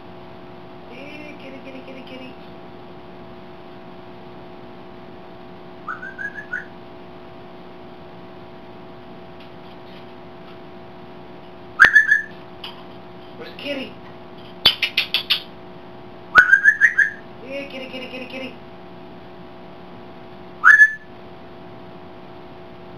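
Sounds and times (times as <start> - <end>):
mains hum: 0.0 - 22.9
parrot sharp pulsing call: 5.8 - 6.7, 11.8 - 12.4, 14.6 - 15.5, 16.3 - 17.2, 20.6 - 21.1
parrot whistled notes: 5.9 - 6.7, 11.8 - 12.3, 16.4 - 17.2, 20.6 - 21.1.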